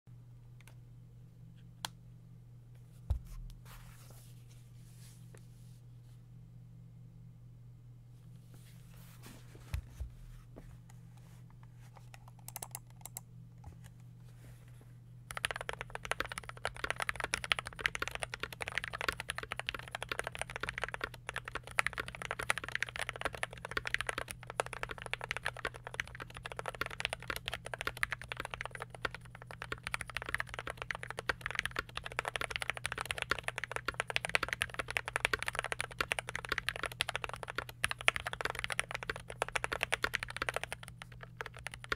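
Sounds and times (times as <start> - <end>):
fast mechanical keyboard typing: 12.1 - 13.2, 15.3 - 41.9.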